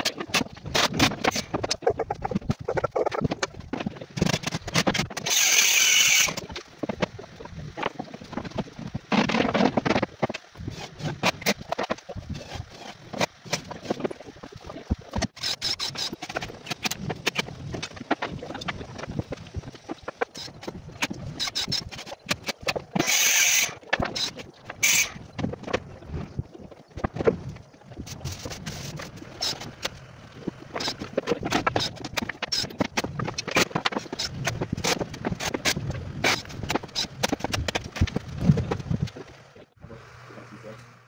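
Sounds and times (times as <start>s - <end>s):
hissing bursts: 23.0s - 25.2s.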